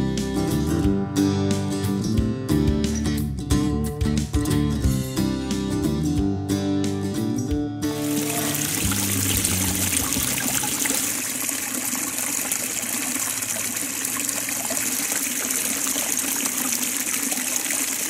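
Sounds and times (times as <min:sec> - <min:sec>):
music: 0:00.0 - 0:11.2
stream trickling over rock: 0:08.0 - 0:18.0.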